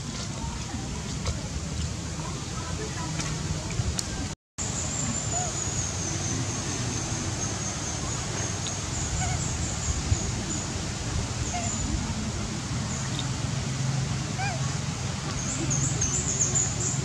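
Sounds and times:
faint squeaky calls: 5.2 - 6.7, 7.4 - 10.0, 11.4 - 12.0, 14.3 - 17.0.

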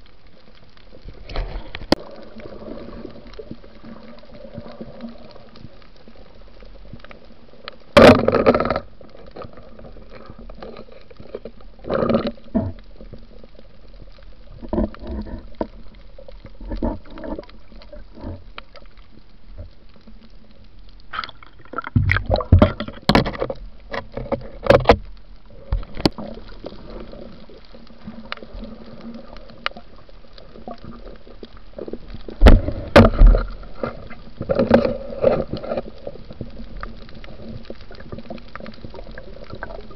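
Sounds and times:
splashing and knocking: 21.1 - 25.0, 32.3 - 35.8.

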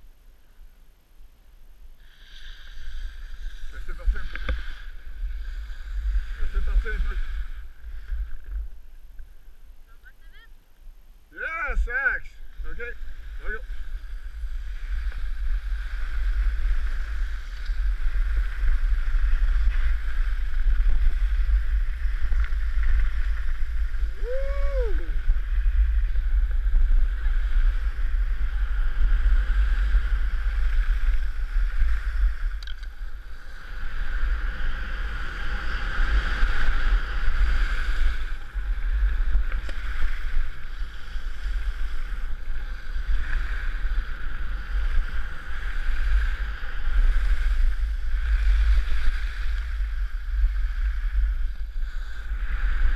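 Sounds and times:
skis hissing over snow: 2.0 - 8.2, 11.4 - 52.9
wind buffeting microphone: 11.4 - 52.9.

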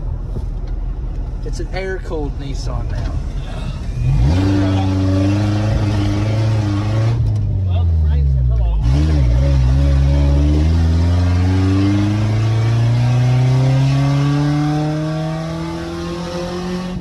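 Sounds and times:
car engine accelerating: 0.0 - 17.0
road and wind noise: 0.0 - 17.0.

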